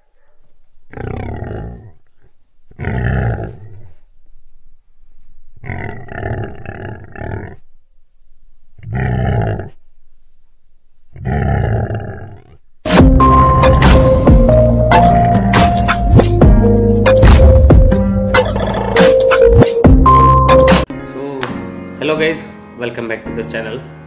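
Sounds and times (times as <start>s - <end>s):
tiger roaring: 0.9s - 4.0s, 5.6s - 7.7s, 8.8s - 9.8s, 11.1s - 12.6s
intro jingle with a beat: 12.9s - 18.1s.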